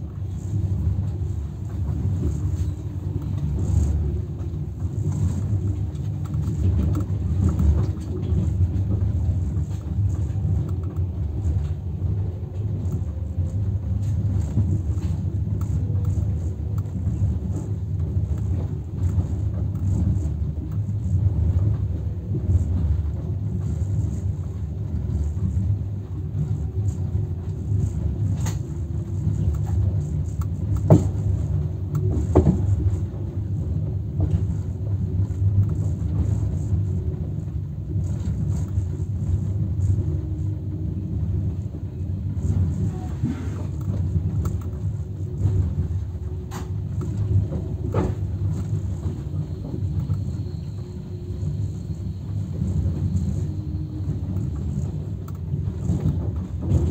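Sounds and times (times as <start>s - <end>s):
train rumble: 0.0s - 56.9s.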